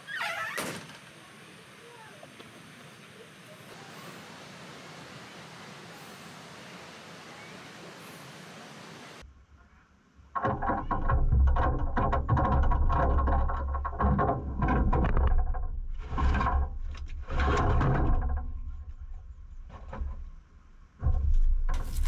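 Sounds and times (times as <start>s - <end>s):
knocks and clicks against metal: 10.4s - 18.8s.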